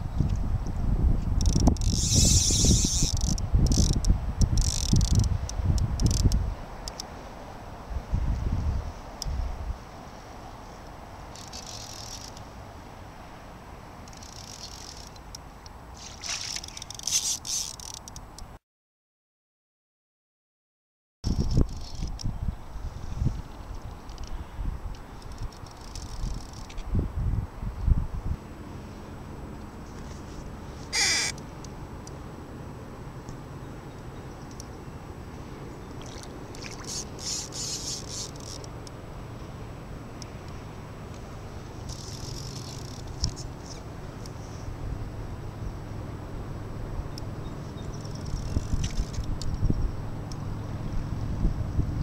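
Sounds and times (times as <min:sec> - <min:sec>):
wind rumble on microphone: 0:00.0 - 0:06.9, 0:07.6 - 0:11.7, 0:21.2 - 0:31.3, 0:35.5 - 0:52.0
outdoor background noise: 0:00.0 - 0:18.6, 0:21.2 - 0:52.0
water lapping against boat hull: 0:35.9 - 0:38.6.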